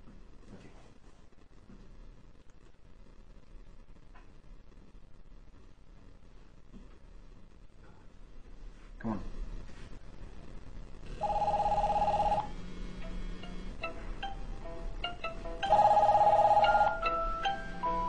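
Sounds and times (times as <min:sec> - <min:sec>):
warbling phone ring: 0:11.2 - 0:12.5, 0:15.6 - 0:17.7
melodic phone ringtone: 0:11.2 - 0:18.0.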